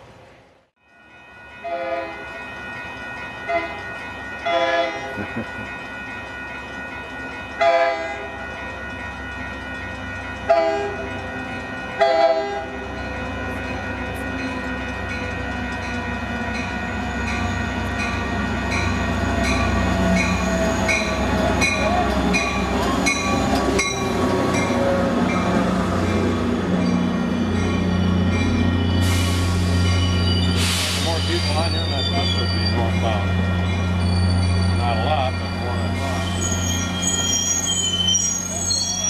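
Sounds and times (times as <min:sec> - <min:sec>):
crossing bell ringing: 0:00.8 - 0:39.0
train horn blasts: 0:01.6 - 0:02.2, 0:04.5 - 0:05.1, 0:07.6 - 0:08.3, 0:10.5 - 0:11.0, 0:12.0 - 0:12.7.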